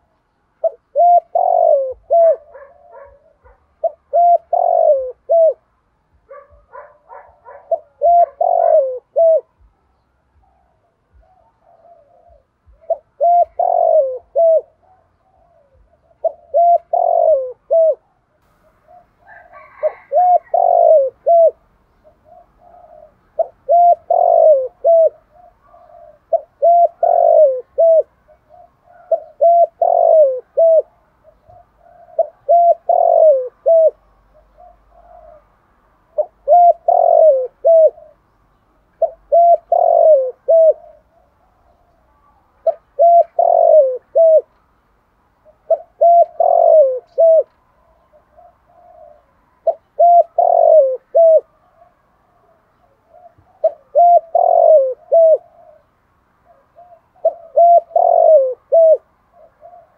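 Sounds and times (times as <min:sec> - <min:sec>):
dove cooing: 0:00.0 - 0:44.6, 0:45.4 - 0:59.9.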